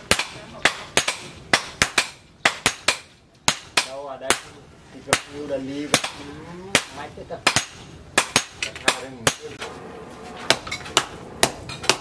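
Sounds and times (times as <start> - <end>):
hammer striking steel on anvil: 0.1 - 9.6, 10.5 - 12.0.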